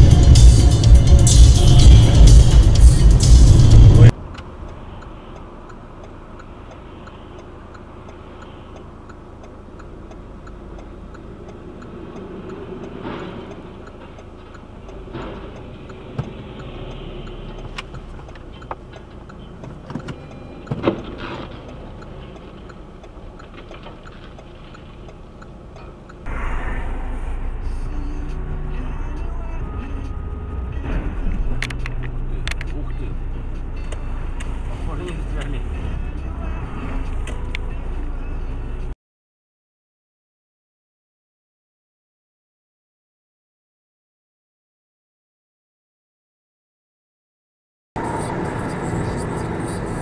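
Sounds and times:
car interior hum: 0:00.0 - 0:39.0, 0:48.0 - 0:50.0
faint regular ticking: 0:04.1 - 0:27.0.

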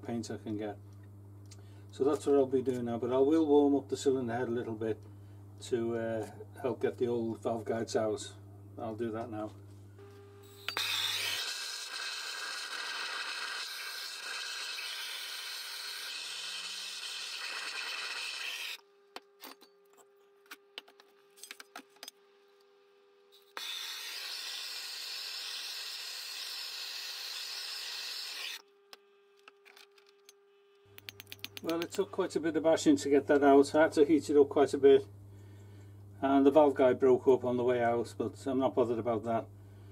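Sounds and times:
metal clicks and knocks: 0:30.9 - 0:32.0.

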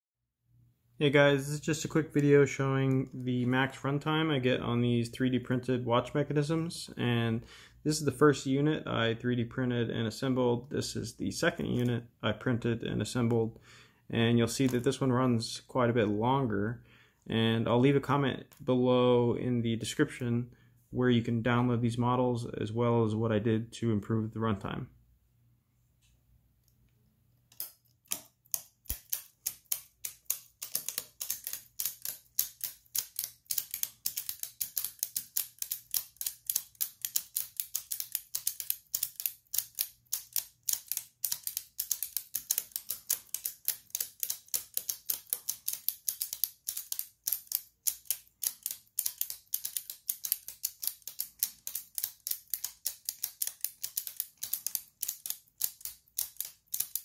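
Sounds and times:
clockwork mechanisms clicking: 0:27.5 - 0:57.0.

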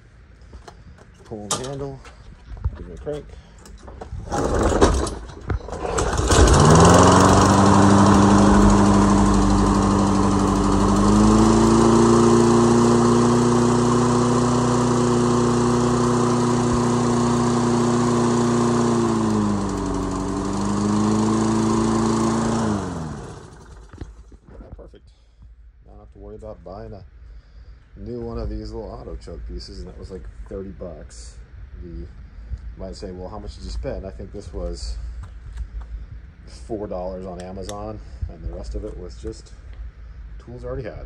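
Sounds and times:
lawn mower engine running: 0:04.1 - 0:24.4.

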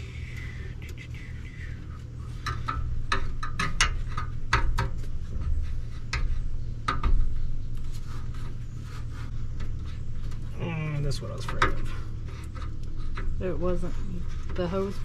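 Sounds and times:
steady low hum: 0:00.0 - 0:15.0
sharp clicks and knocks: 0:00.3 - 0:07.8, 0:11.3 - 0:13.4.

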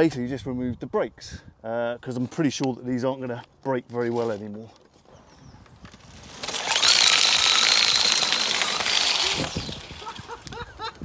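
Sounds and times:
electric motor high whine: 0:06.2 - 0:10.5.

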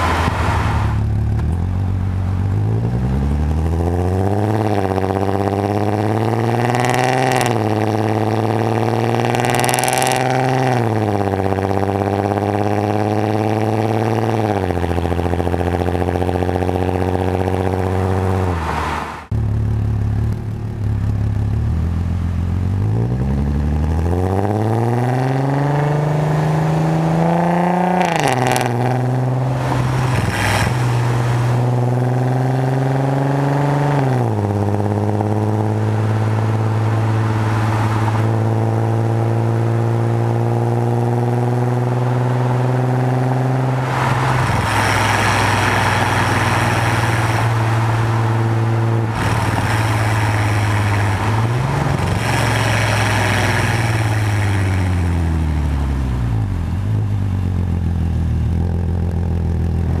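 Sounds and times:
car engine driving: 0:00.0 - 1:00.0.

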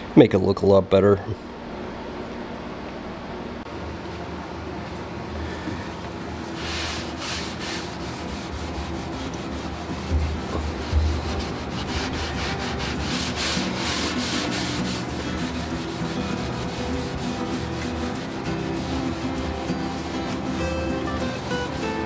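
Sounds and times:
rag rubbing on wood: 0:06.5 - 0:22.0.

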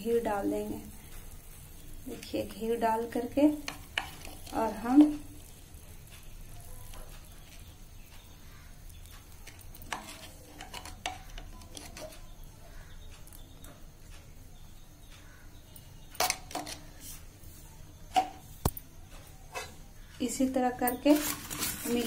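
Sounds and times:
utensils clinking against a pan: 0:02.5 - 0:08.4, 0:09.1 - 0:12.5, 0:15.8 - 0:17.3, 0:18.1 - 0:22.0.

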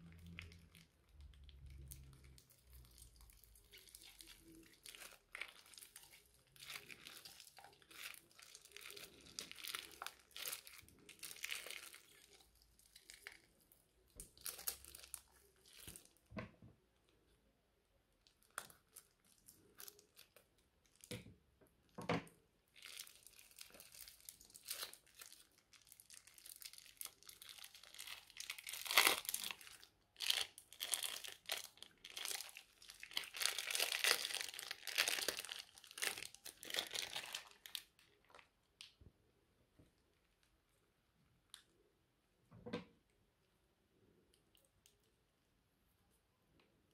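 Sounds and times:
slime crackling when squeezed: 0:00.0 - 0:16.3, 0:22.7 - 0:38.5.

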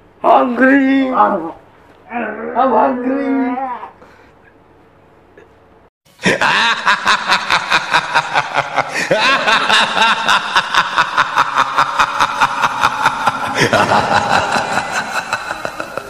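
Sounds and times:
loud continuous laughter: 0:06.2 - 0:16.0.

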